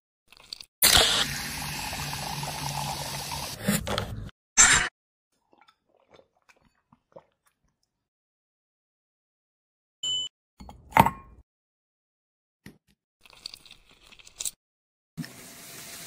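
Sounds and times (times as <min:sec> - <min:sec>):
soda pouring into glass: 0:00.9 - 0:03.6
sipping and swallowing: 0:05.4 - 0:08.1.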